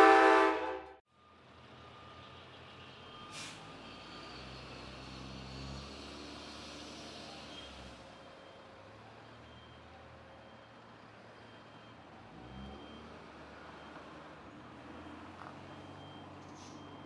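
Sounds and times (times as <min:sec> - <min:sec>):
diesel locomotive drone: 0:00.0 - 0:06.6.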